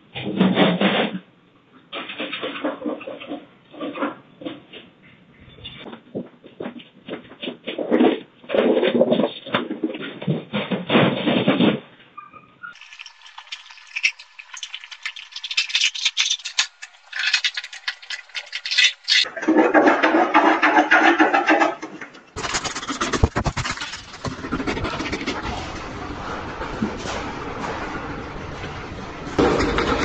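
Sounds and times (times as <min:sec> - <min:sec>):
floor covering ripping and crackling: 0:14.0 - 0:19.3, 0:22.4 - 0:30.0.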